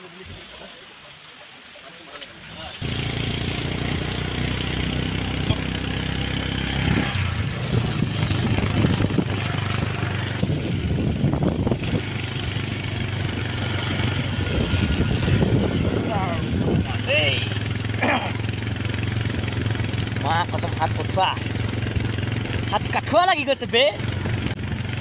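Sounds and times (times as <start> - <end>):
wet road noise: 0.0 - 25.0
motorcycle engine running: 2.8 - 25.0
wind noise: 6.7 - 17.7.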